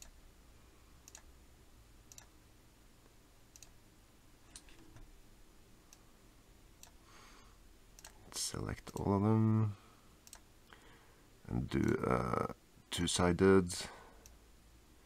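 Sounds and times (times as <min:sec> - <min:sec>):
faint computer mouse clicks: 0:10.2 - 0:10.5.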